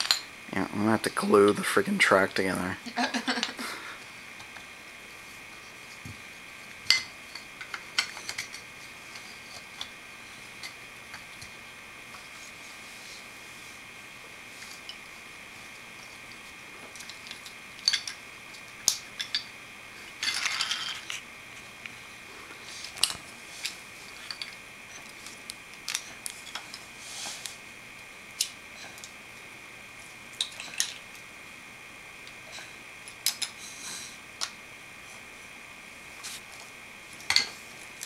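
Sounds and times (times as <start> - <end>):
toy train pieces clicking and knocking: 33.2 - 33.6.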